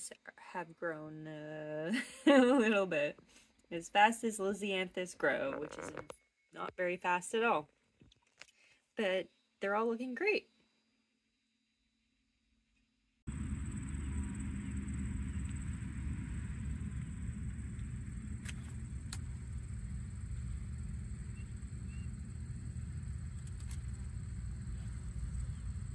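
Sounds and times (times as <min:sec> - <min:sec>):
high-pitched whine: 0:13.3 - 0:25.9
low rumble: 0:13.3 - 0:25.9
sharp clicks: 0:23.2 - 0:24.1.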